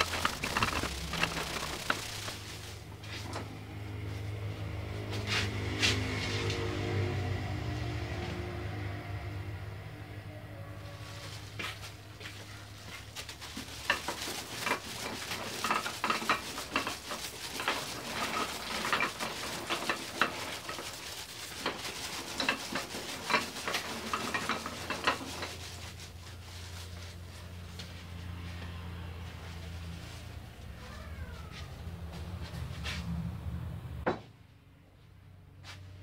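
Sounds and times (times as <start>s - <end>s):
plastic crinkling and rustling: 0.0s - 3.4s, 11.0s - 28.2s.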